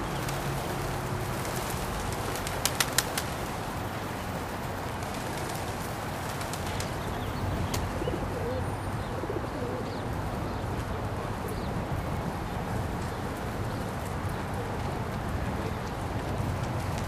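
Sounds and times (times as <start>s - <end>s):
pigeon wings flapping: 0.0s - 8.0s, 15.9s - 17.0s
background hiss: 0.0s - 8.5s
pigeon cooing: 7.9s - 10.0s.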